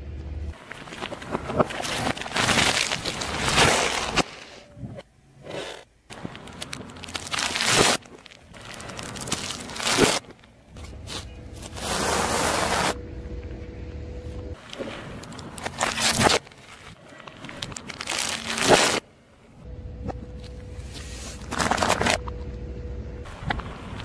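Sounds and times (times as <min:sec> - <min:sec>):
car tyre crushing objects: 0:05.5 - 0:13.0, 0:14.6 - 0:19.2, 0:20.9 - 0:22.3.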